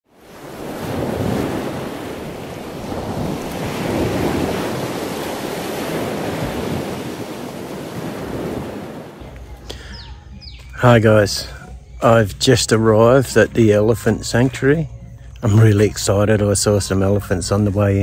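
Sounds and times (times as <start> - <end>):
steady rushing noise: 0.1 - 9.3.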